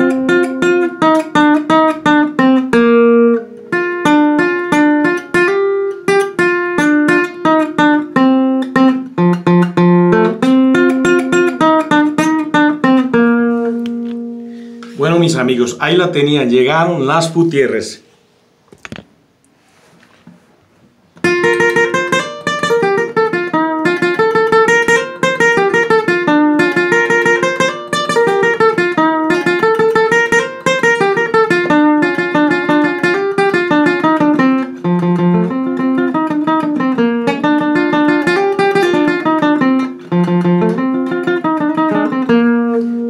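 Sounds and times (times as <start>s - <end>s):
acoustic guitar melody: 0.0s - 19.0s, 21.1s - 43.0s.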